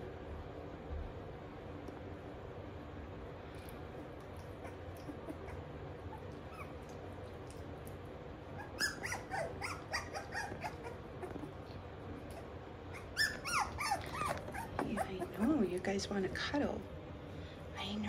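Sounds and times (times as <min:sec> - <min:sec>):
puppies whimpering and squeaking: 0:04.5 - 0:07.5, 0:08.5 - 0:15.7.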